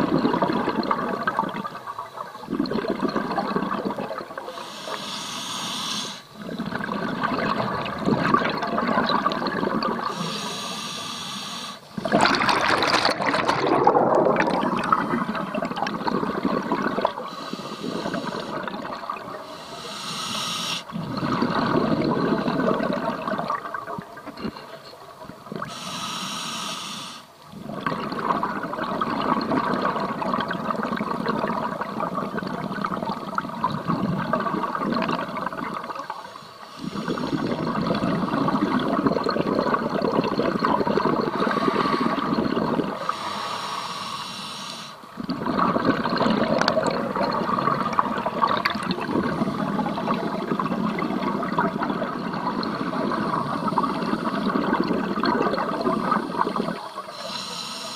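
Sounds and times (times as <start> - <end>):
exhaled bubbles underwater: 0.0 - 4.9, 6.2 - 11.1, 11.8 - 25.9, 27.3 - 43.4, 45.0 - 57.5
regulator inhalation hiss: 4.5 - 6.4, 10.1 - 12.0, 17.3 - 18.6, 19.4 - 20.9, 25.6 - 27.3, 36.2 - 37.5, 41.4 - 42.4, 43.0 - 45.1, 56.0 - 57.9.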